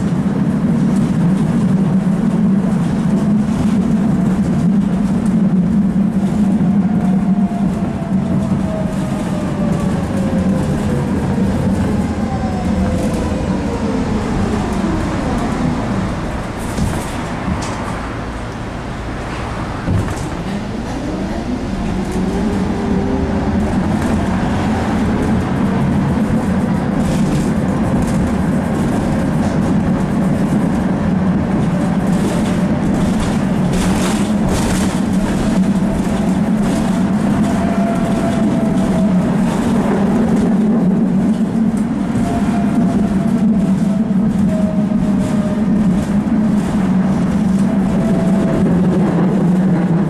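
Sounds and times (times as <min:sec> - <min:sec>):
tram motor humming and whining: 0:00.0 - 0:50.0
wheels clattering over track: 0:23.6 - 0:50.0.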